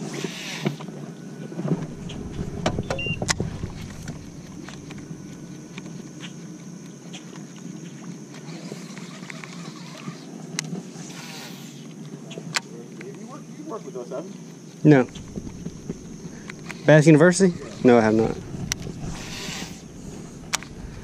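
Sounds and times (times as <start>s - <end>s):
electric trolling motor humming: 1.7s - 6.9s, 15.1s - 21.0s.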